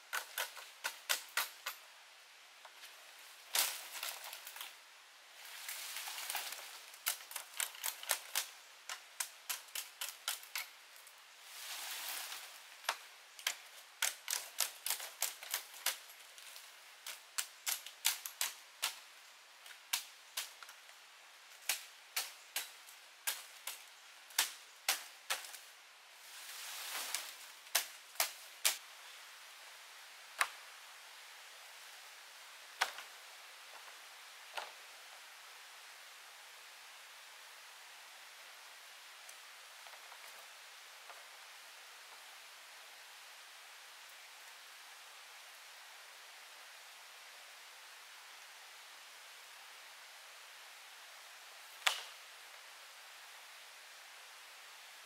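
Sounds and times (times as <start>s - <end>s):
rustling: 2.6s - 28.8s.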